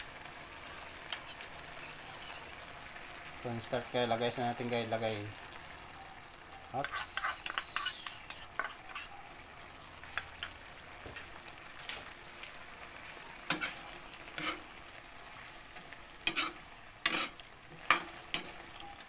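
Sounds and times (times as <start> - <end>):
low sizzle: 0.0 - 19.0
ladle scraping a wok: 6.8 - 9.2, 13.5 - 15.6, 16.2 - 18.6.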